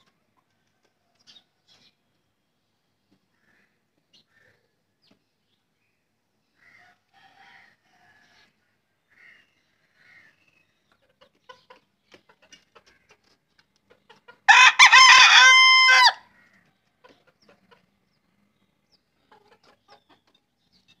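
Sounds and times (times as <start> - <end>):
chicken clucks: 10.8 - 14.5, 16.4 - 18.2, 18.9 - 21.0
rooster crowing: 14.5 - 16.3.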